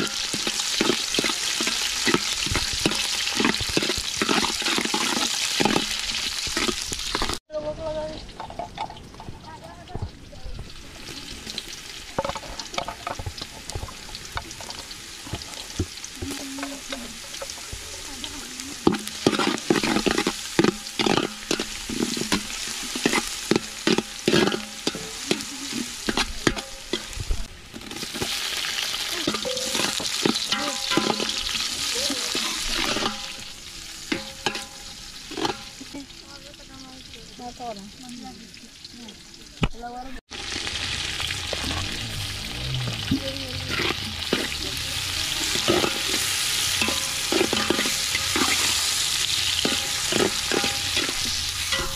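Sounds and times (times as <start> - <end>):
metal spoon scraping pot: 0.0 - 7.4, 18.8 - 27.2, 29.2 - 35.9, 43.0 - 51.9
onions sizzling in oil: 0.0 - 51.9.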